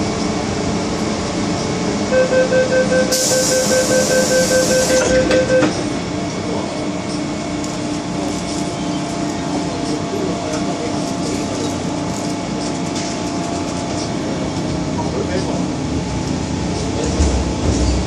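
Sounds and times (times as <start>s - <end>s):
train door warning beeps: 2.1s - 5.9s.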